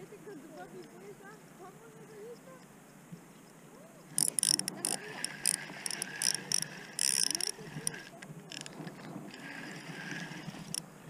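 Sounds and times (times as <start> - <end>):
spinning reel clicking and buzzing: 4.2 - 10.8.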